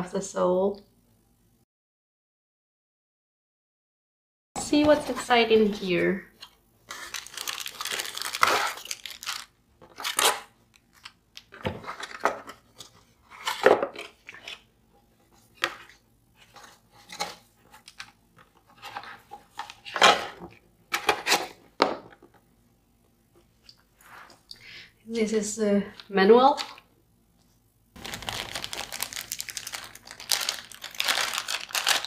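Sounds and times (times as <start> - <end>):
cardboard and plastic rustling: 6.4 - 22.4, 28.0 - 32.0.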